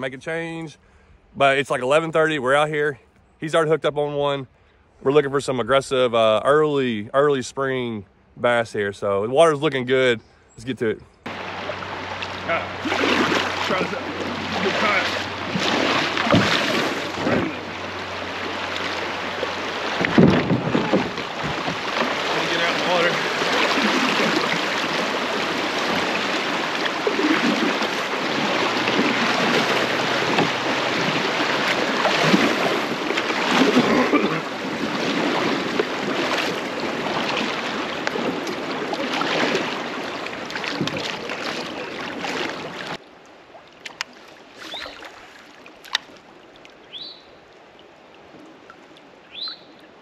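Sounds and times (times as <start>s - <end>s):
creek water rushing around kayak: 10.8s - 50.0s
paddle strokes splashing: 11.2s - 49.7s.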